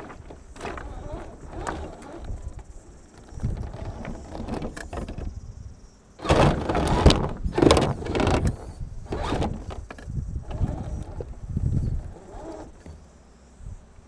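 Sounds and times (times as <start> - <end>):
toy car motor running: 0.0 - 5.0, 6.2 - 13.0
pebbles crunching and clattering: 0.0 - 5.3.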